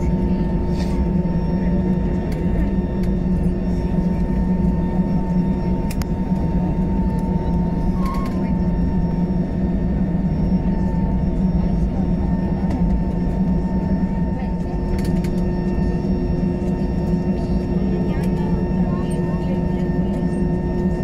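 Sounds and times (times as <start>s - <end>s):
aircraft cabin engine hum: 0.0s - 21.0s
faint clicks: 5.9s - 6.1s.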